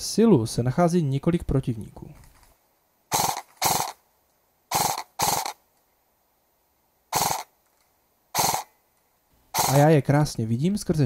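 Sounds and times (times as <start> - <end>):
airsoft gunfire bursts: 3.1 - 4.0, 4.7 - 5.6, 7.1 - 7.5, 8.4 - 8.7, 9.6 - 9.9.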